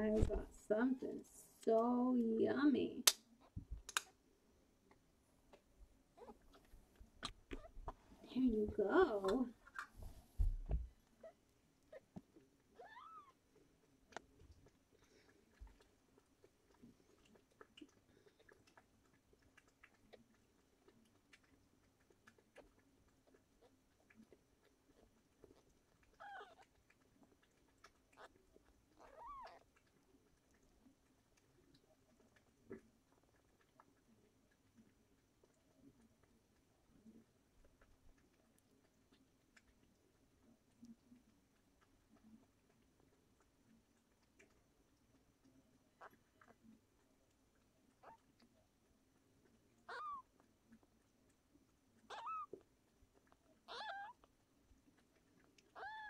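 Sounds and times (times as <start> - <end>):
kitten mewing: 49.9 - 50.2, 52.1 - 52.6, 53.7 - 54.2, 55.8 - 56.0.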